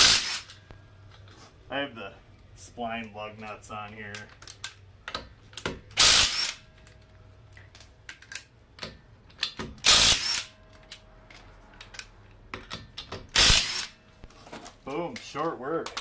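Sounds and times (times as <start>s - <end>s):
impact wrench spinning off lug nuts: 0.0s - 0.6s, 6.0s - 6.7s, 9.8s - 10.6s, 13.3s - 14.0s.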